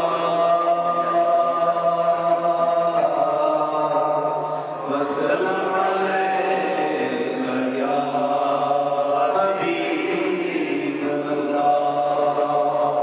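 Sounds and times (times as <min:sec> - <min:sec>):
man chanting into a microphone: 0:00.0 - 0:13.0.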